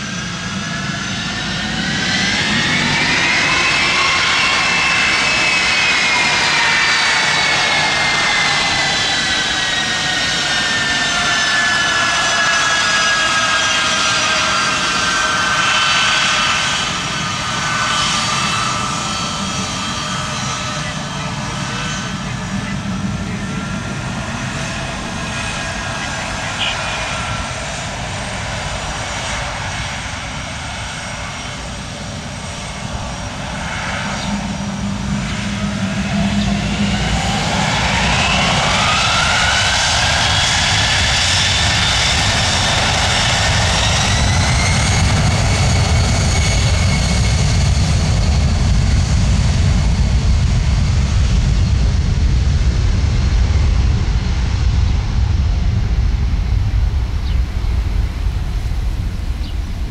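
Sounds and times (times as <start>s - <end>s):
jet engine whine: 0.0s - 59.9s
heavy low rumble: 47.6s - 59.9s.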